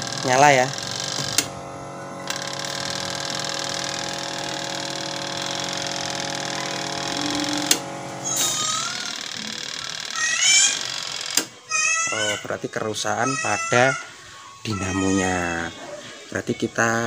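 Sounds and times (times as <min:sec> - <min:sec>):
steady hum: 0:00.0 - 0:10.1
timer knob mechanical whirr: 0:02.2 - 0:11.6.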